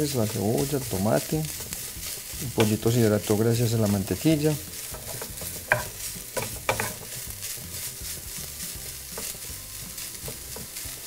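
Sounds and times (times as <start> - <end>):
chicken sizzling in a frying pan: 0.0 - 11.0
wooden spoon scraping a pan: 0.0 - 11.0
spoon knocking against pan: 4.9 - 7.2.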